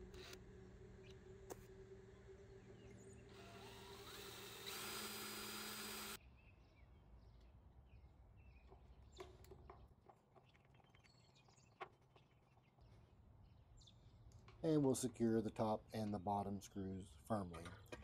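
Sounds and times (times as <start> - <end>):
cordless drill boring into steel: 3.3 - 6.2.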